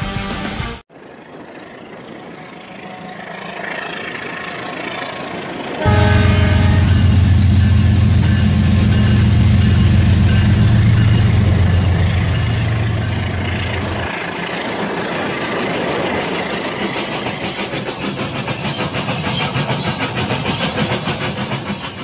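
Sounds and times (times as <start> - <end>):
toy train wheels clattering: 11.9 - 22.0.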